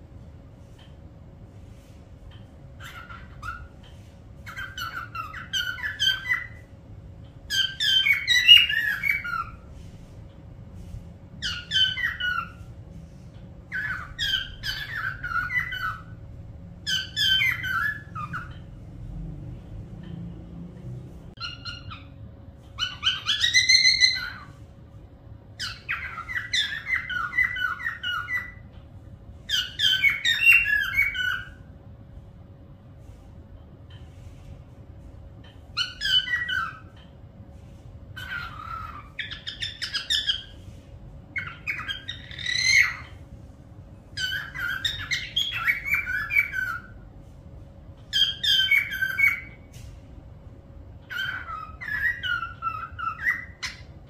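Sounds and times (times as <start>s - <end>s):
parrot calling and whistling: 1.8s - 6.7s, 7.5s - 9.8s, 11.4s - 12.8s, 13.7s - 16.2s, 16.8s - 18.7s, 21.4s - 24.6s, 25.6s - 28.6s, 29.4s - 31.7s, 35.5s - 37.1s, 38.1s - 43.2s, 44.1s - 47.1s, 48.0s - 49.9s, 51.0s - 54.0s.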